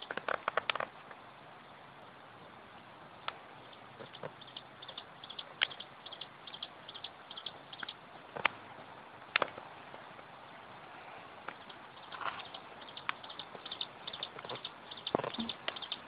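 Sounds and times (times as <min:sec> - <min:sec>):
steady hiss: 0:00.0 - 0:16.0
sharp clicks: 0:03.2 - 0:08.6, 0:11.5 - 0:16.0.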